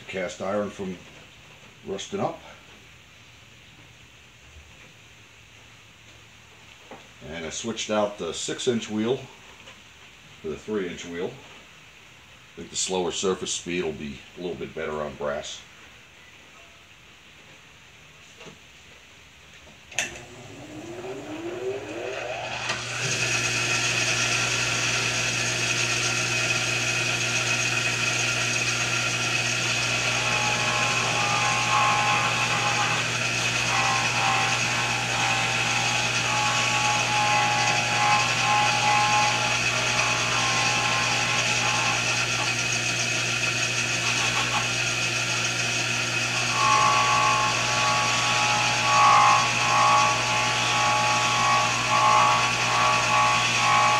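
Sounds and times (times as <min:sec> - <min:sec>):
bench grinder motor hum: 0:20.0 - 0:53.9
brass against buffing wheel: 0:28.3 - 0:42.7, 0:46.2 - 0:53.9.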